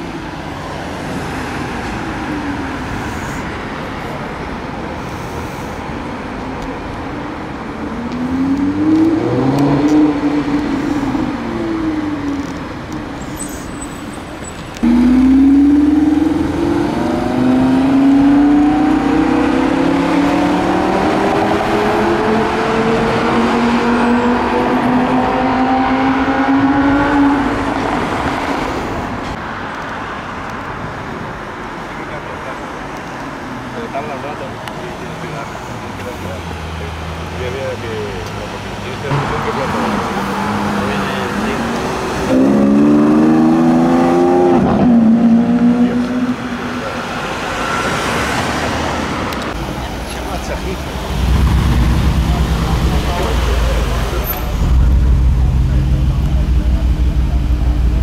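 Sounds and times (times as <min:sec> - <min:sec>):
traffic noise: 0:00.0 - 0:58.0
sports car engine accelerating: 0:14.8 - 0:28.1, 0:39.1 - 0:47.7, 0:50.2 - 0:58.0.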